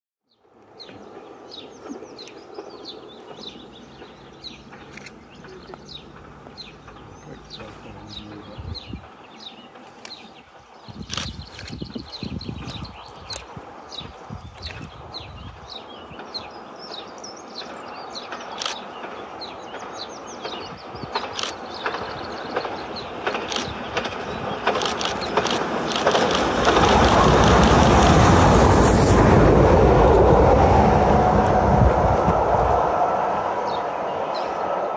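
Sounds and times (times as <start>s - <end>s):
small birds chirping: 0.3s - 27.8s
distant steam locomotive: 0.4s - 10.8s, 12.6s - 34.9s
sharp clicks: 3.3s - 7.0s, 11.0s - 11.8s, 18.3s - 19.2s, 20.4s - 27.8s.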